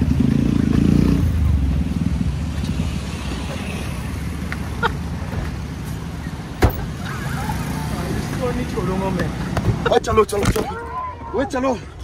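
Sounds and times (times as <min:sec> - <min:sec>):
sharp thump: 0:06.6 - 0:06.9.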